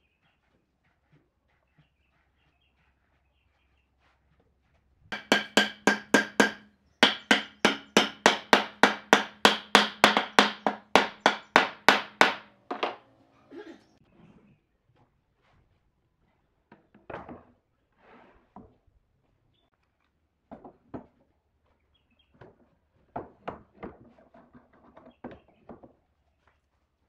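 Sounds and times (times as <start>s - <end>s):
hammer blows on wooden boards: 5.1s - 13.1s.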